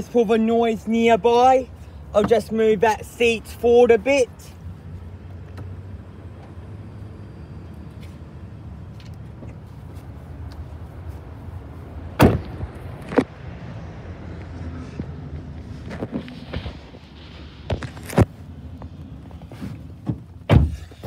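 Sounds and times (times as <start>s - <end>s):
low rumble of nearby traffic: 0.0s - 21.0s
car door shutting: 12.2s - 13.3s, 19.5s - 21.0s.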